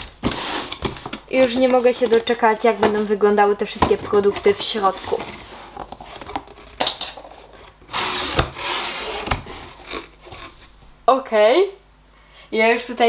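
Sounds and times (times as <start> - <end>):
cardboard box rubbing and scraping: 4.1 - 6.6, 7.3 - 10.7.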